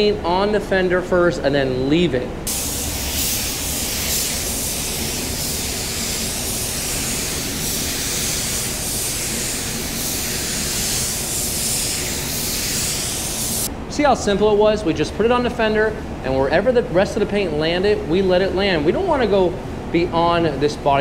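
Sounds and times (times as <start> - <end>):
paint spray gun hissing: 2.5 - 13.7.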